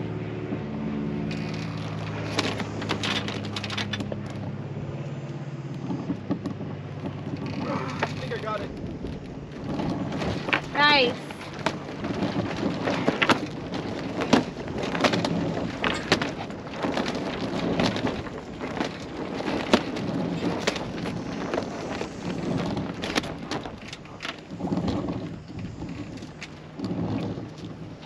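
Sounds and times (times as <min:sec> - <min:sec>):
sail flapping and snapping: 0:00.0 - 0:28.0
wind buffeting microphone: 0:00.0 - 0:28.0.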